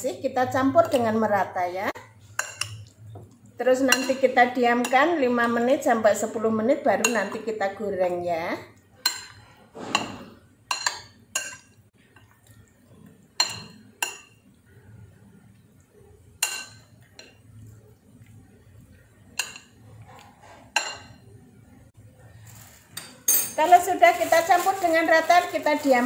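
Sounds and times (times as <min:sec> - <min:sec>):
metal spoon clinking glass bowl: 0:02.4 - 0:02.9, 0:03.9 - 0:05.7, 0:09.0 - 0:11.8, 0:13.4 - 0:14.5, 0:20.8 - 0:21.2, 0:22.9 - 0:24.0.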